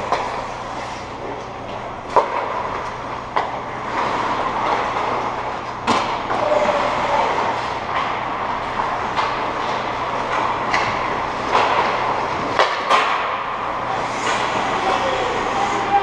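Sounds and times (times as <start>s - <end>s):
stick hitting puck: 2.1s - 3.6s, 5.8s - 6.5s, 7.9s - 13.6s
skate blades scraping ice: 3.5s - 16.0s.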